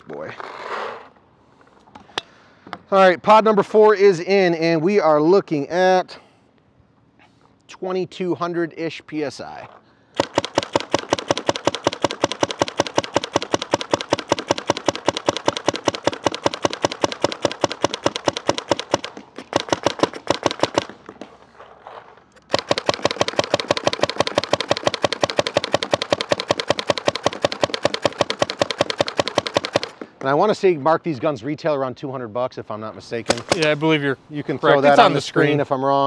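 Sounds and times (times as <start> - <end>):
paintball marker firing: 10.2 - 21.3, 22.4 - 30.2, 33.3 - 33.8.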